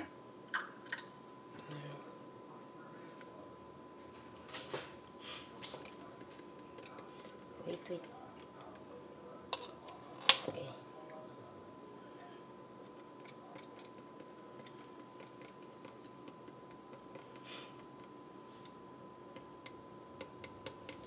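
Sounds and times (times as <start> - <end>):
faint high hum: 0.0 - 21.0
measuring cup clicking on bowl: 12.9 - 18.2, 19.3 - 21.0.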